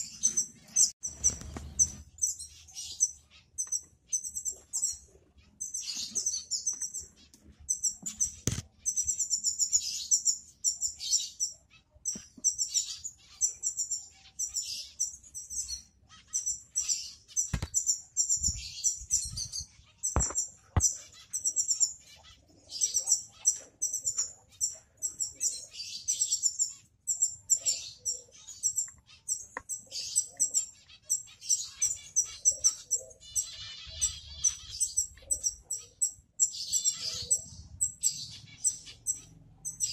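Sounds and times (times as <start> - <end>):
finches chirping: 0.0 - 39.9.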